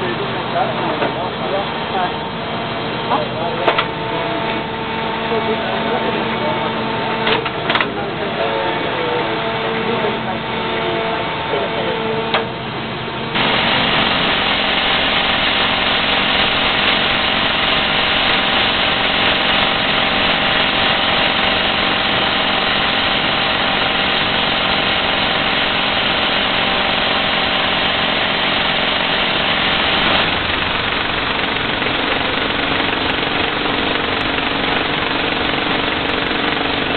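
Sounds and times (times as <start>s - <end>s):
rig motor running: 0.0s - 36.9s
rock drill drilling into rock: 13.4s - 36.9s.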